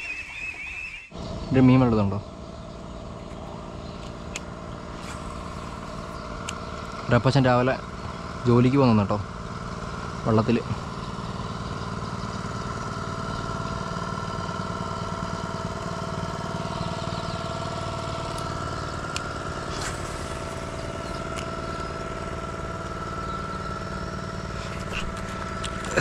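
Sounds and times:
small engine droning with whine: 0.0s - 26.0s.

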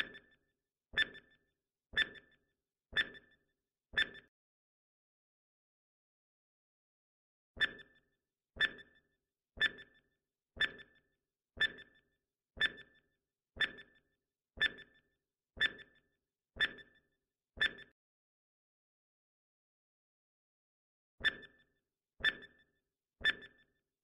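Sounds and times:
electronic tick-beeps: 0.0s - 0.4s, 1.0s - 3.4s, 4.0s - 4.3s, 7.6s - 18.0s, 21.2s - 23.8s.

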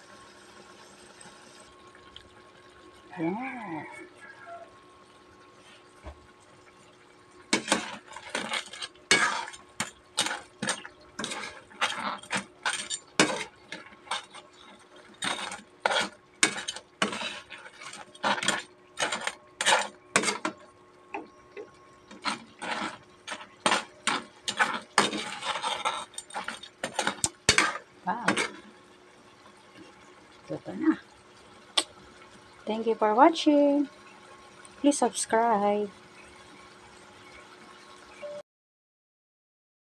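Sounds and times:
utensil clacking against pot: 22.1s - 28.6s.

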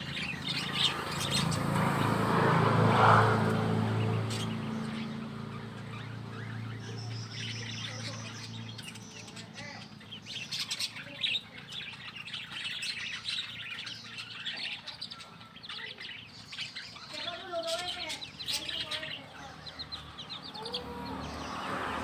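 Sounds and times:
chicks and ducklings peeping: 0.0s - 22.0s.

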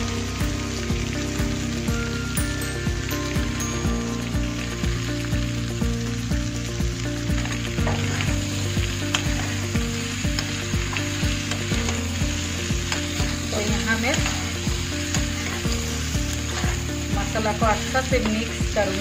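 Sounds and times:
vegetables sizzling in oil: 0.0s - 19.0s
spoon stirring in pan: 7.4s - 19.0s.

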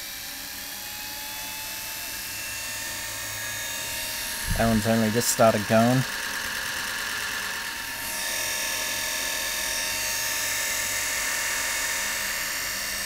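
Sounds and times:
vacuum cleaner motors whining: 0.0s - 13.0s.

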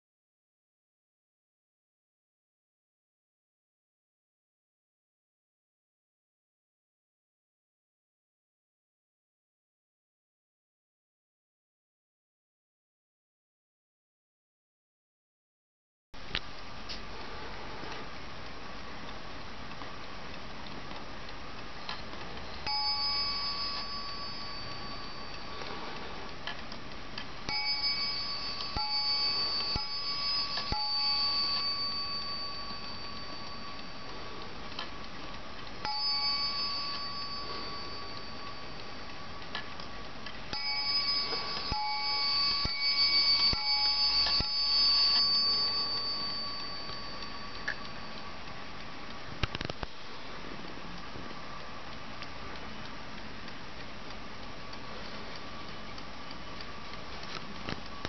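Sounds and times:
clock ticking: 17.9s - 58.0s
clock striking chime: 22.6s - 26.2s, 27.5s - 34.7s, 35.8s - 39.5s, 40.5s - 48.5s.

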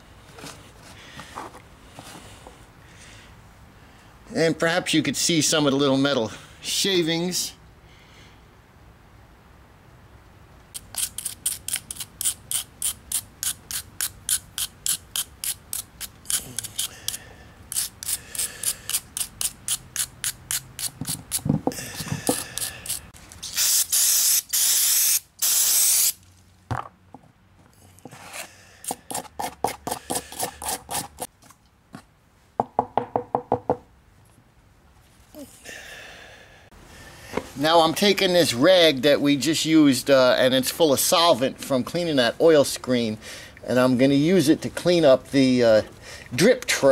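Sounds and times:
spray can hissing: 22.3s - 26.2s.

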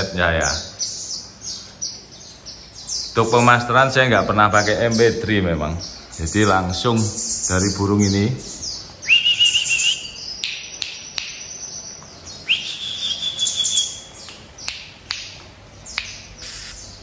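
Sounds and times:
bird whistled notes: 9.0s - 10.4s, 12.4s - 14.3s, 16.4s - 17.0s
high thin twittering: 12.4s - 14.7s, 15.9s - 17.0s.

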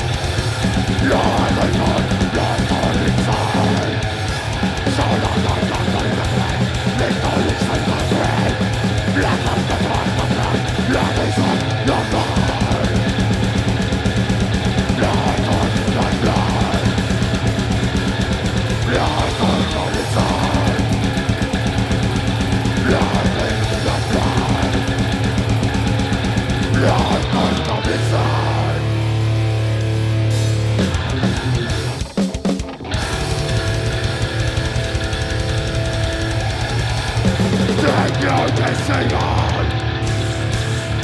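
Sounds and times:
growled vocals: 0.0s - 13.9s, 14.5s - 29.4s, 36.8s - 40.7s
distorted guitar and bass: 0.0s - 41.0s
fast drumming: 0.0s - 41.0s.

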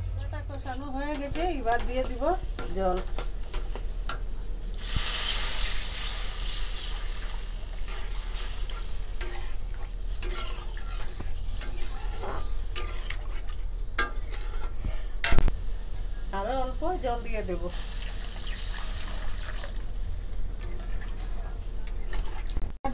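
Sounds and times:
water sizzling in hot pan: 4.6s - 14.1s, 16.3s - 20.0s
metal spatula scraping pan: 7.7s - 15.4s.

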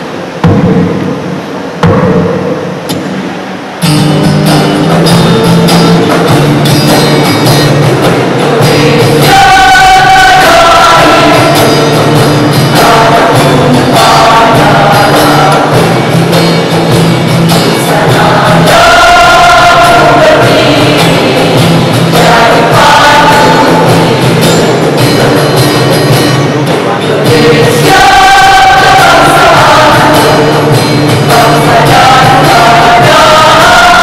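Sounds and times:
women's choir singing a march: 8.1s - 17.0s, 17.6s - 25.4s, 26.9s - 34.0s.

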